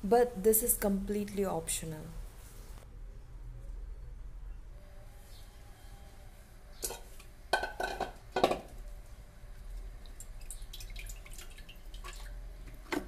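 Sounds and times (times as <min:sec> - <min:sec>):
water splashing and dripping: 0:10.0 - 0:12.4.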